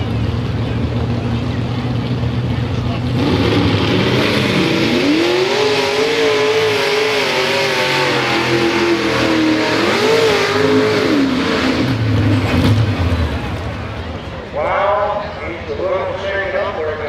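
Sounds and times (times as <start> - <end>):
tractor engine revving hard: 2.8 - 14.1.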